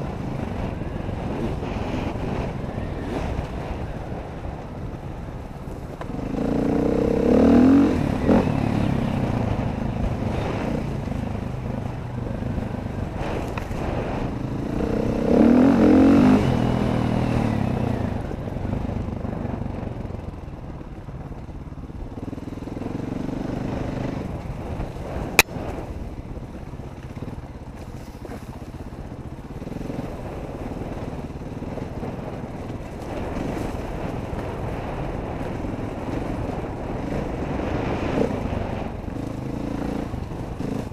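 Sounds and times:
dirt bike engines revving: 0:00.0 - 0:19.8, 0:28.5 - 0:40.9.

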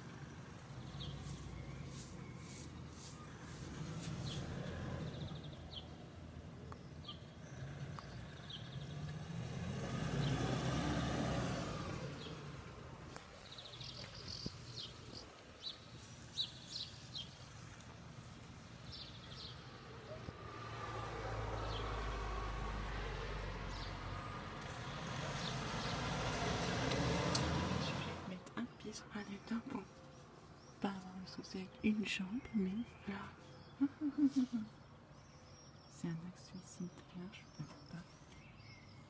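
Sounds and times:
small birds chirping: 0:00.0 - 0:09.3, 0:12.0 - 0:39.0
car passing by: 0:03.4 - 0:05.6, 0:07.5 - 0:14.9, 0:18.9 - 0:28.4.

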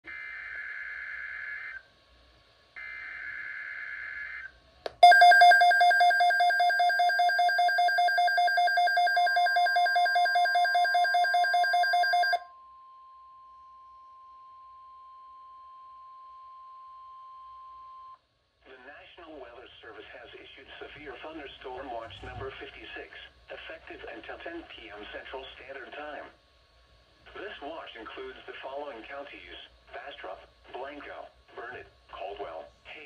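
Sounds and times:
steady attention tone: 0:04.9 - 0:12.4
pulsing two-pitch alarm beep: 0:05.0 - 0:12.4.

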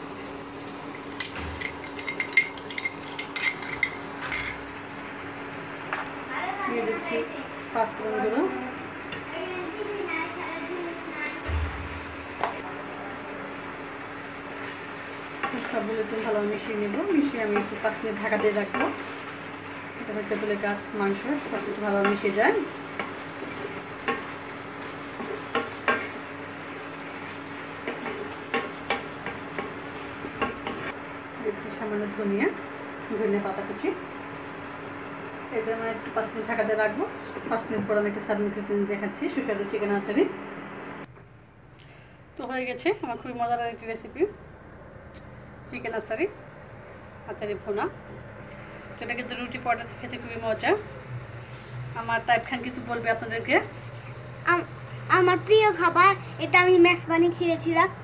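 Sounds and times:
curry sizzling: 0:00.0 - 0:41.1
spatula clinking on glass bowl: 0:01.2 - 0:04.6
spatula knocking and scraping pan: 0:21.9 - 0:24.4, 0:25.1 - 0:26.2, 0:27.8 - 0:30.9.

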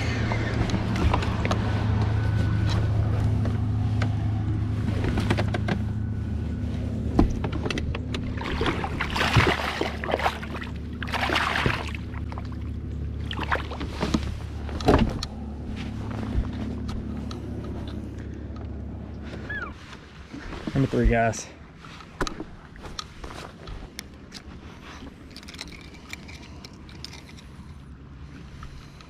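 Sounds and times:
low motor hum: 0:00.0 - 0:29.0
fish splashing at the surface: 0:08.3 - 0:12.6.

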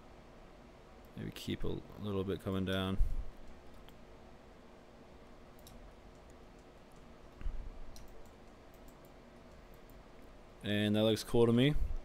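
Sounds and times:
low room hum: 0:00.0 - 0:12.0
computer mouse clicks: 0:05.5 - 0:10.0.

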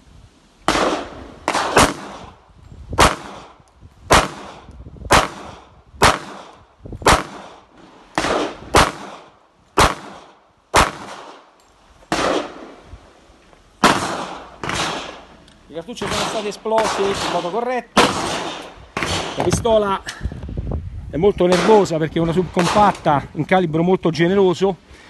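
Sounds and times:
pistol shots ringing: 0:00.7 - 0:02.3, 0:07.1 - 0:07.6, 0:08.2 - 0:11.4, 0:12.1 - 0:12.7, 0:13.8 - 0:15.2, 0:16.0 - 0:19.5, 0:21.5 - 0:22.0.

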